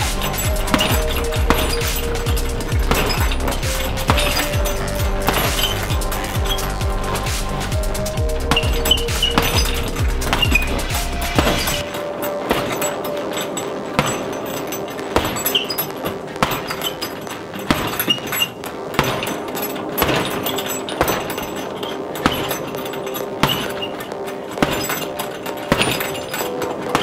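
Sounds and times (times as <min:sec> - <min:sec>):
punches thumping heavy bag: 0:00.0 - 0:11.8, 0:14.0 - 0:23.9, 0:24.5 - 0:27.0
chain clinking: 0:00.0 - 0:27.0.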